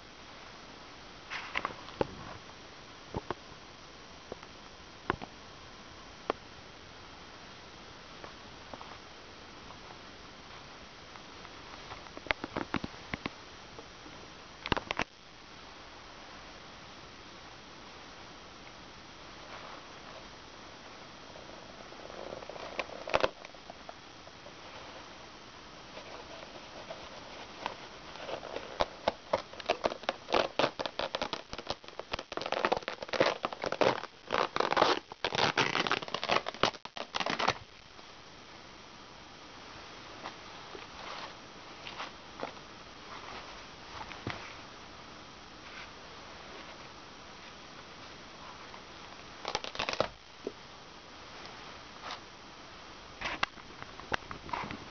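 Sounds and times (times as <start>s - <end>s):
denim tearing: 22.0s - 23.6s, 26.0s - 37.6s, 49.4s - 50.2s.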